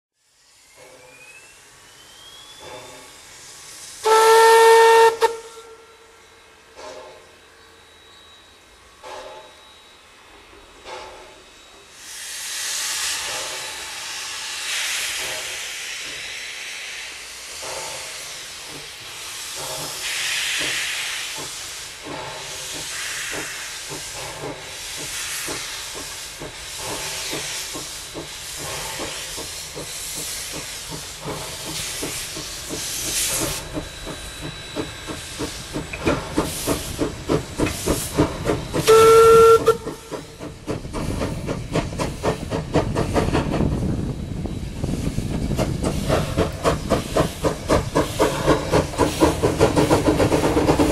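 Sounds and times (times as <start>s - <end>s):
steam hissing: 0.2s - 50.9s
steam locomotive chuffing: 0.3s - 50.9s
steam whistle blast: 4.0s - 6.2s, 38.8s - 40.3s.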